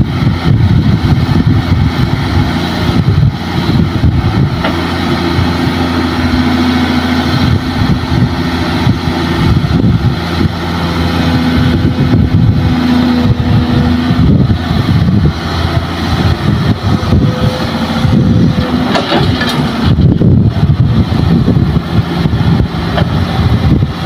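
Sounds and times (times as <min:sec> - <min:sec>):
excavator diesel engine running: 0:00.0 - 0:24.0
hydraulic whine: 0:00.0 - 0:24.0.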